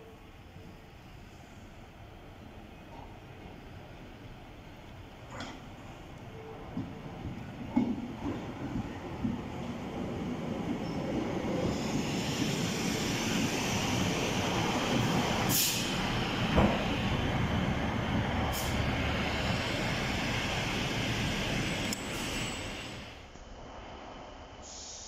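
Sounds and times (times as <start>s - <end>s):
train engine and wheel noise: 0.0s - 25.0s
high brake hiss: 15.3s - 16.1s, 18.5s - 19.9s, 20.5s - 23.2s, 24.6s - 25.0s.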